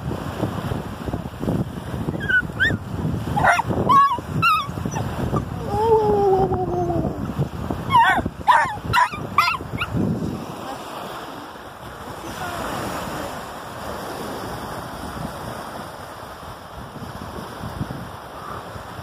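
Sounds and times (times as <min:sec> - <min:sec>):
waves washing on shore: 0:00.0 - 0:19.0
wind on microphone: 0:00.0 - 0:19.0
small dog whining yips: 0:02.2 - 0:02.8, 0:03.4 - 0:05.9, 0:07.9 - 0:09.9.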